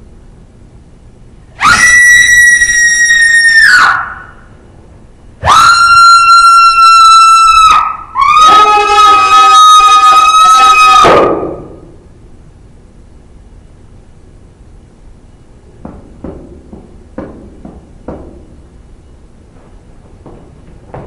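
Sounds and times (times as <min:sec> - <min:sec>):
lower voice screaming: 0:01.6 - 0:04.4, 0:05.4 - 0:11.8
high-pitched human screams: 0:01.6 - 0:04.5, 0:05.4 - 0:11.8.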